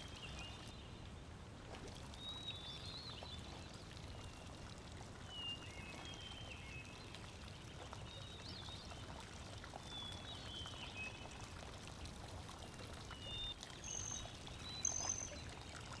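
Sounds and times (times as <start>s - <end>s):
water splashing and churning: 1.4s - 9.9s.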